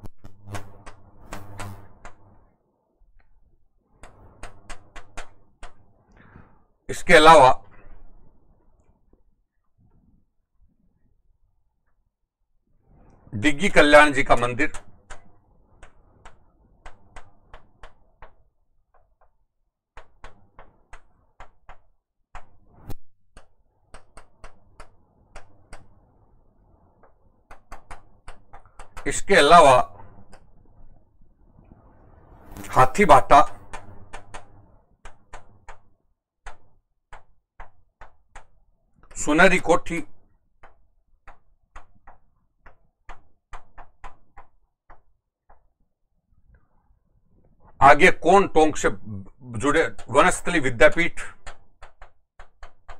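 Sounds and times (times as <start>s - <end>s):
sharp irregular taps and clicks: 0.0s - 2.4s, 4.0s - 6.3s, 14.4s - 26.1s, 26.9s - 30.5s, 32.5s - 45.8s, 49.6s - 52.9s.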